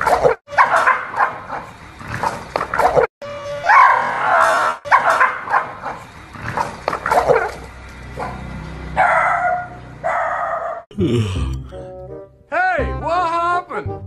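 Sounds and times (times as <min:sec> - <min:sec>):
dog barking and yelping: 0:00.5 - 0:01.7, 0:03.7 - 0:06.1, 0:09.0 - 0:10.9.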